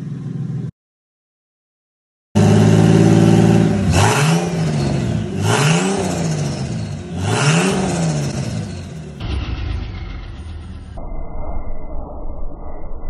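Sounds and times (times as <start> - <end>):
car engine idling and revving: 0.0 - 0.7, 2.4 - 11.0.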